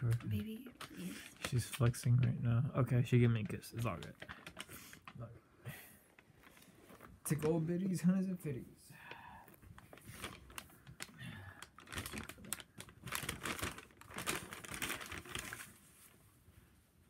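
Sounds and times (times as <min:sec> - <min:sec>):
paper bag rustling and crinkling: 0:02.9 - 0:05.2, 0:06.0 - 0:08.0, 0:09.7 - 0:16.3.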